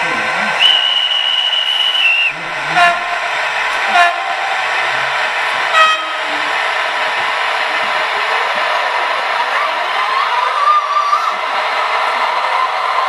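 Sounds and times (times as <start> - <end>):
steady hiss of running wheels: 0.0 - 13.0
high horn tone: 2.8 - 3.2, 3.9 - 4.2, 5.7 - 6.2.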